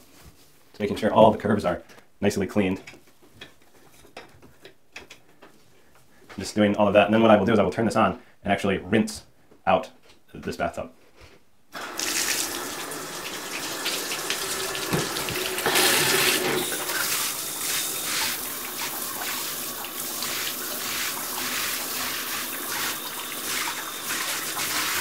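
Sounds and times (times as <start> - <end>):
shower sprayer spraying water: 11.8 - 25.0.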